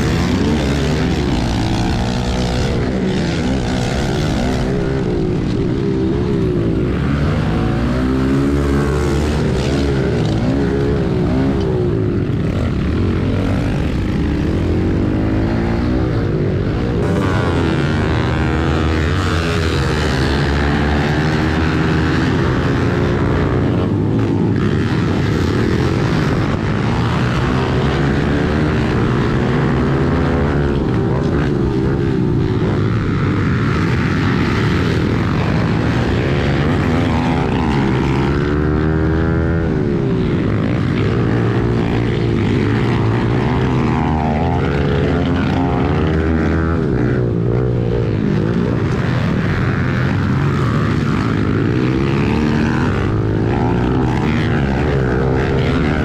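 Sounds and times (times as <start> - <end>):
other pit bikes running: 0.0 - 56.0
pit bike engine revving: 0.0 - 56.0.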